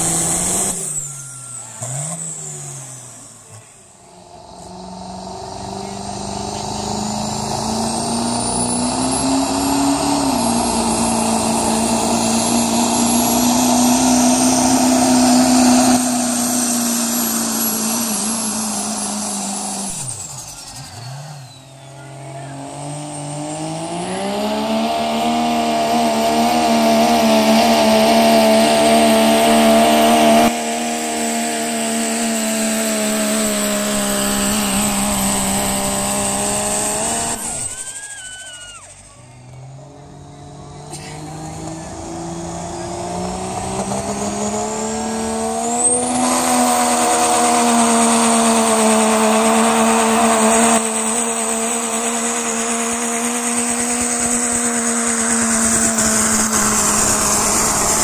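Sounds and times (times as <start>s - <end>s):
diesel truck engine at full throttle: 0.0s - 58.0s
high turbo whine: 0.0s - 58.0s.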